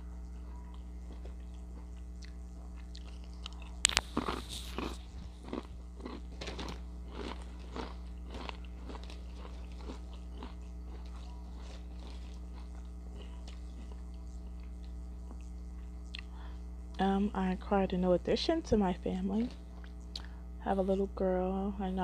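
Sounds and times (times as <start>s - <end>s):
chips being chewed crunching: 0.3s - 16.3s.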